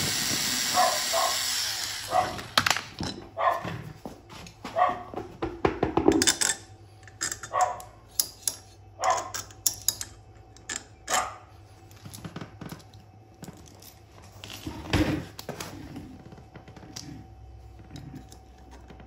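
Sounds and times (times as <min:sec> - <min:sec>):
dog barking: 0:00.8 - 0:01.4, 0:02.1 - 0:02.4, 0:03.4 - 0:03.8, 0:04.7 - 0:05.2, 0:07.5 - 0:07.9, 0:09.0 - 0:09.3, 0:11.1 - 0:11.5.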